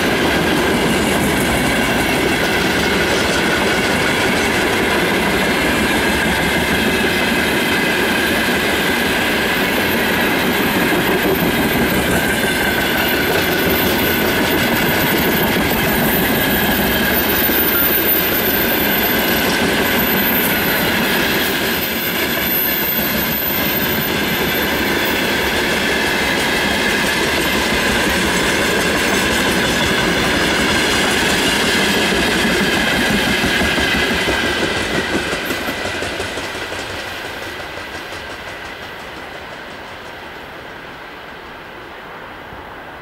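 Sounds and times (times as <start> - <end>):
freight wagons rumbling on rails: 0.0 - 41.2
wheels clicking over rail joints: 9.6 - 21.6, 24.3 - 40.5.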